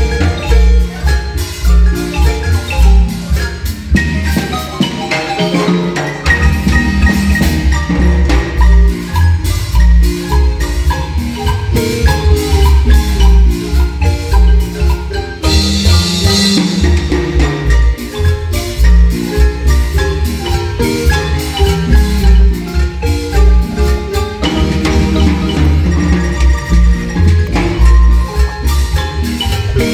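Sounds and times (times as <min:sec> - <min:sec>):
marimba ensemble playing: 0:00.0 - 0:29.9
low bass line: 0:06.3 - 0:29.9.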